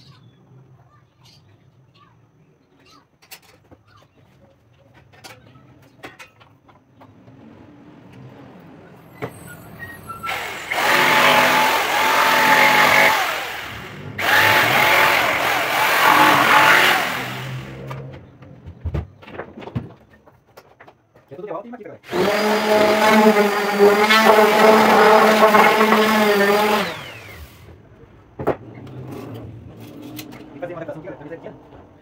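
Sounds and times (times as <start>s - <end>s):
jigsaw cutting wood: 10.3s - 17.9s, 22.1s - 27.7s.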